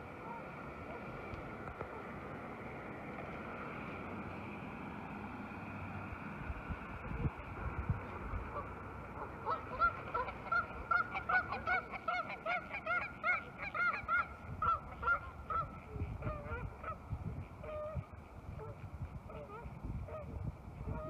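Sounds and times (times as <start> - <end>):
geese honking: 8.4 - 17.0.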